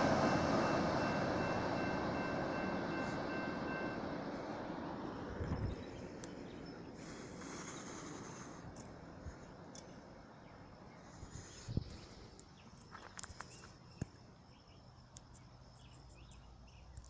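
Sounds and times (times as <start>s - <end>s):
small birds chirping: 5.4s - 17.0s.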